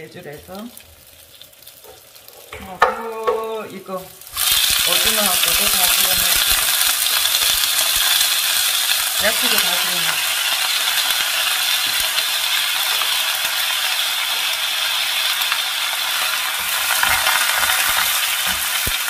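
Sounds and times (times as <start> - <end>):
food sizzling in hot oil: 0.0 - 19.0
wooden spoon knocking against pan: 1.9 - 3.5.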